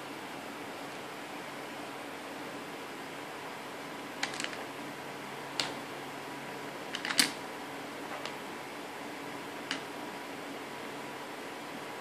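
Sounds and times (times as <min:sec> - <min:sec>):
plastic pieces clicking: 0:04.2 - 0:04.6, 0:06.9 - 0:07.4.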